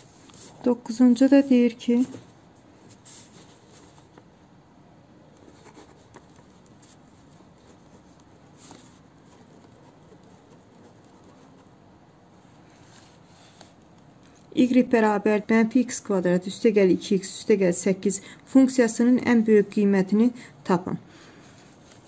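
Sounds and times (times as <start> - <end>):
pen scratching on paper: 5.4 - 11.8.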